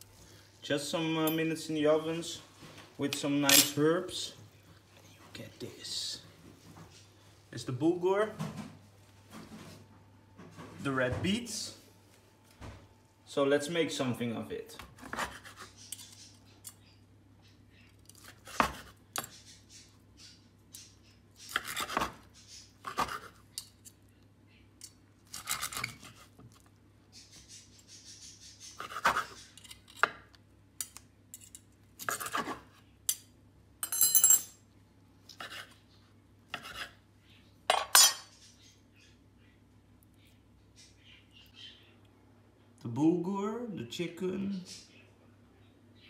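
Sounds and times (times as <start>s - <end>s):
cutlery clinking: 3.4s - 3.8s, 33.8s - 34.6s, 37.7s - 38.3s
knife scraping wooden board: 15.0s - 16.3s, 28.7s - 30.1s, 35.3s - 35.8s, 36.5s - 37.0s.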